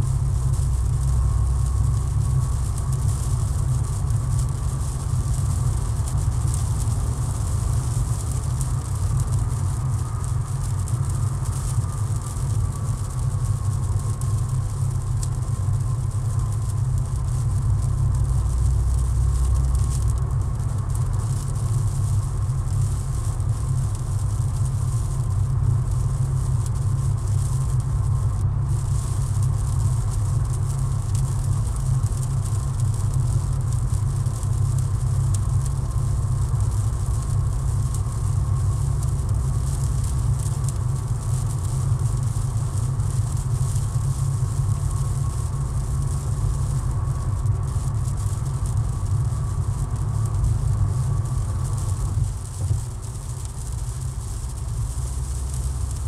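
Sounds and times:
car engine drone on highway: 0.0 - 56.0
rain: 0.0 - 56.0
tyres hissing on wet road: 17.0 - 56.0.

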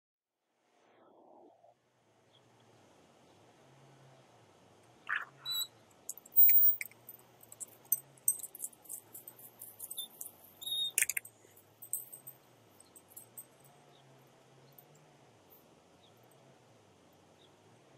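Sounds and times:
door squeaks: 5.1 - 5.7.

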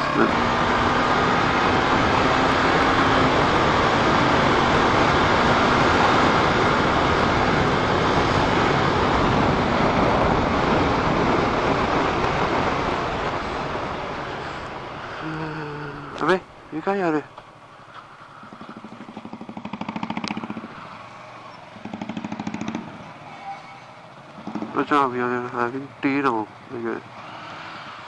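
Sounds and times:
motorcycle engine: 0.0 - 28.0
wind rushing over microphone: 0.1 - 16.8.

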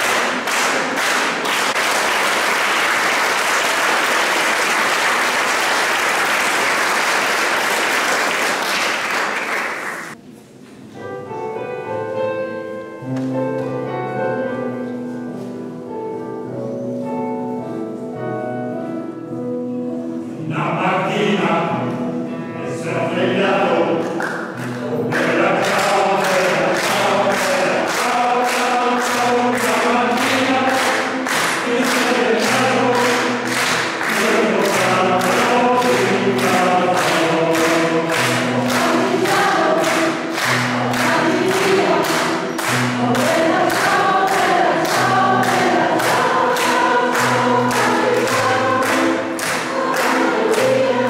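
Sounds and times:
audience applauding: 0.0 - 10.2, 24.2 - 51.0
choir singing: 24.9 - 51.0.

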